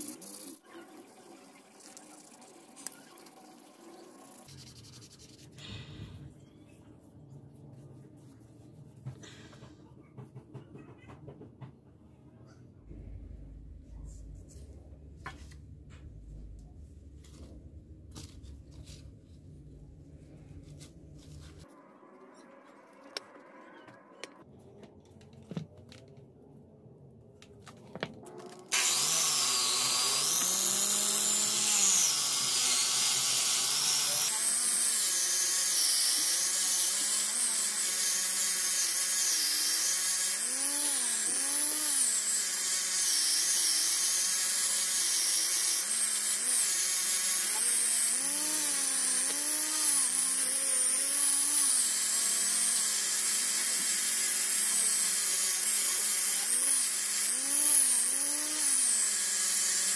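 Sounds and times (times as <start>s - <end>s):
angle grinder running: 28.7s - 59.9s.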